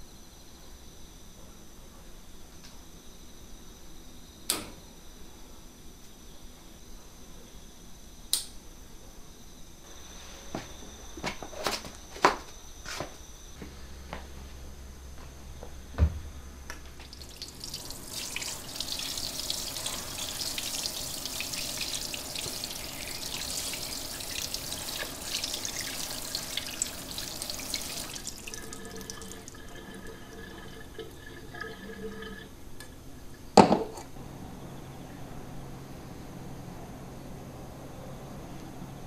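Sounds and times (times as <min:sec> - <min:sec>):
tap water running into colander: 0:17.0 - 0:33.4.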